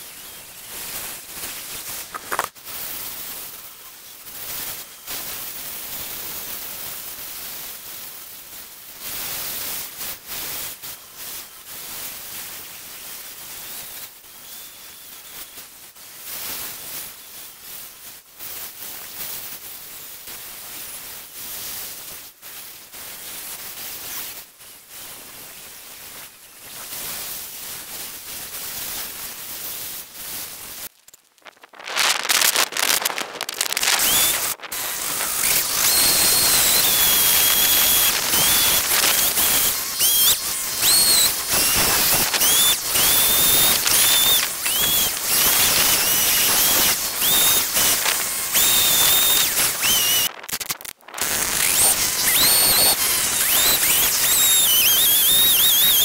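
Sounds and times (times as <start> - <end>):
background noise: 0.0 - 56.0
chainsaw cutting wood: 1.5 - 2.6, 32.0 - 56.0.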